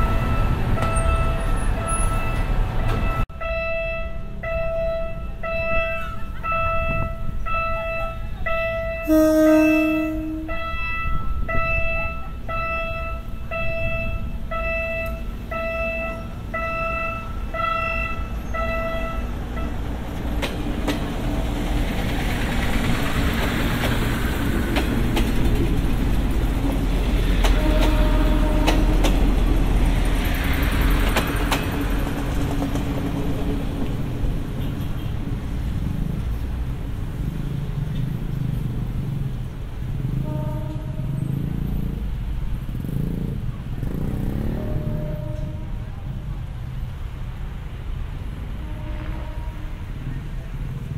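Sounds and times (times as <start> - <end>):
crossing warning bell: 0.0 - 20.2
diesel train engines: 0.0 - 50.9
wheels clicking over rail joints: 19.3 - 36.6.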